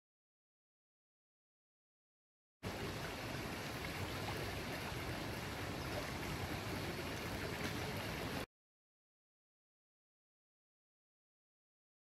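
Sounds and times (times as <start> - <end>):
water rushing down a ditch: 2.6 - 8.5.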